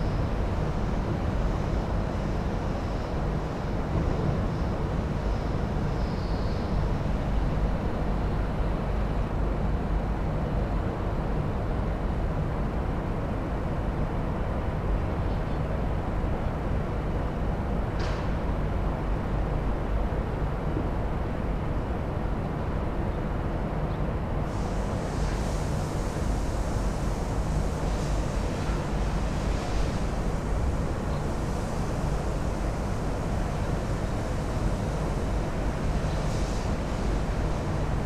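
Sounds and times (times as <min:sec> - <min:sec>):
jetfoil rumble and hiss: 0:00.0 - 0:38.0.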